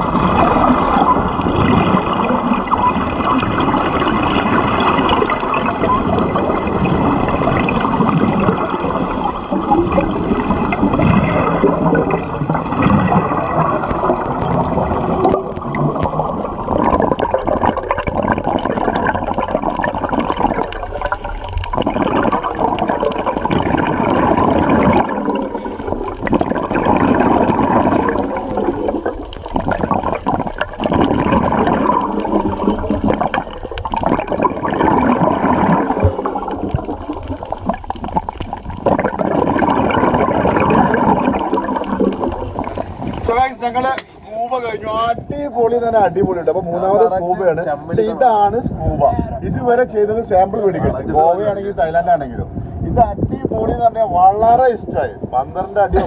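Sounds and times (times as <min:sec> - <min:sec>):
diver breathing bubbles: 0:00.0 - 0:43.3
underwater gurgling and rushing: 0:00.0 - 0:43.9.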